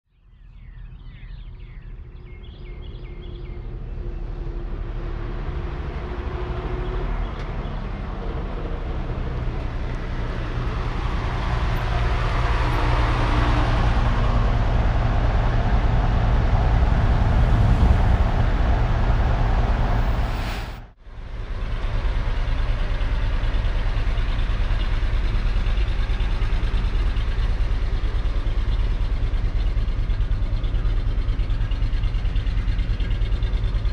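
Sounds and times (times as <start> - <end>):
vehicle engine rumble: 0.2 - 33.9
rushing whoosh: 12.4 - 21.0
low engine idle: 21.1 - 33.9.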